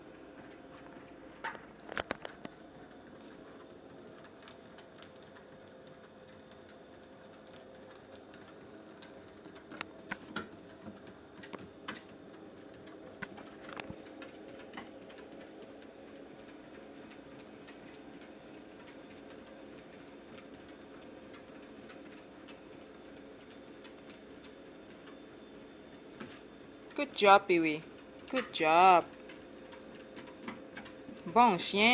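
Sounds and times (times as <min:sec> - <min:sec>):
treadmill humming and ticking: 0:00.0 - 0:31.9.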